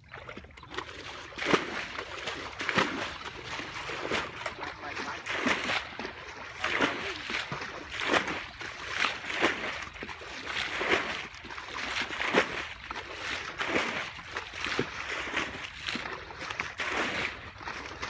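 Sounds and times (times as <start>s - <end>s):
buckets sloshing water: 0.0s - 18.0s.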